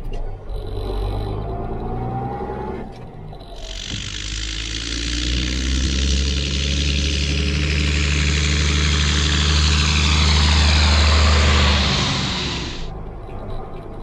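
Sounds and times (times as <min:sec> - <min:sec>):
tractor diesel engine passing: 0:03.3 - 0:13.9.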